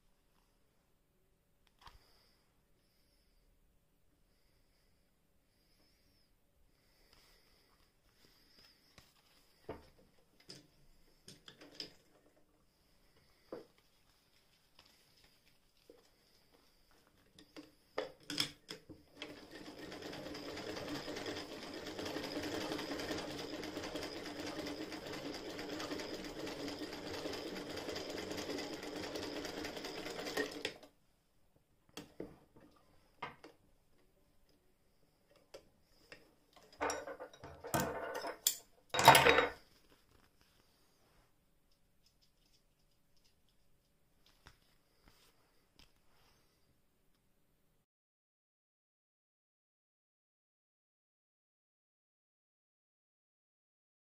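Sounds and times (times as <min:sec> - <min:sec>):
hand-crank sewing machine stitching: 0:18.2 - 0:30.9.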